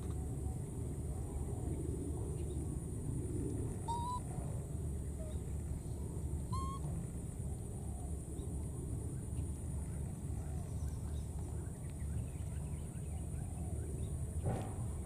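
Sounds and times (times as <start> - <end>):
low background rumble: 0.0 - 15.0
baby monkeys cooing: 3.9 - 4.3, 6.5 - 6.8.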